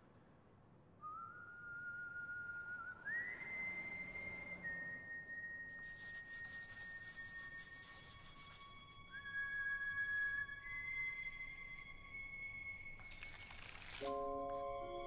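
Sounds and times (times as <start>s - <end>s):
high whistle-like held tone: 1.0s - 7.9s
crackling hiss: 13.0s - 14.2s.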